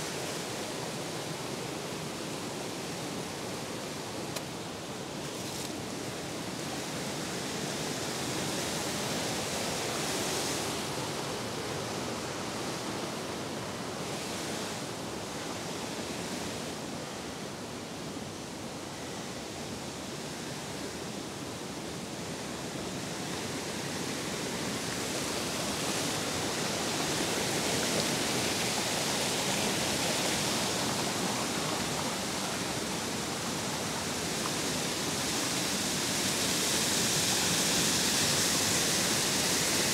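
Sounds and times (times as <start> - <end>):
stream flowing: 0.0 - 39.9
waterfall rushing: 21.8 - 39.9.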